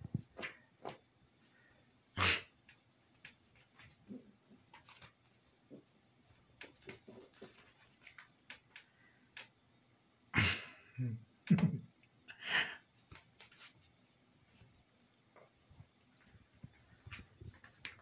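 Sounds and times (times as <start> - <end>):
faint clicks: 6.5 - 9.6.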